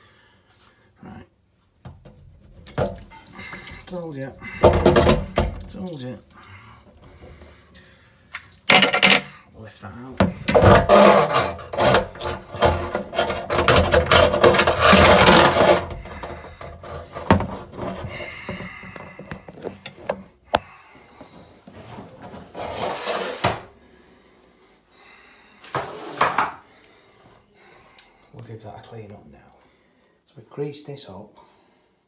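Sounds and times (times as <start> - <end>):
metal scraping and knocking: 8.7 - 9.3, 10.2 - 20.3.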